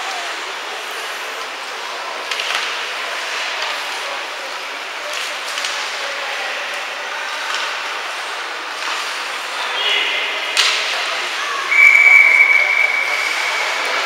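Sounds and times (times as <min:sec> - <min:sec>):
din of voices: 0:09.7 - 0:14.0
referee's whistle blast: 0:11.7 - 0:14.0.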